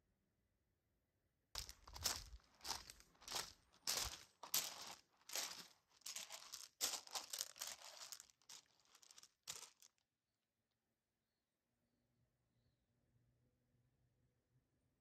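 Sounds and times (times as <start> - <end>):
footsteps on gravel: 1.6 - 9.9.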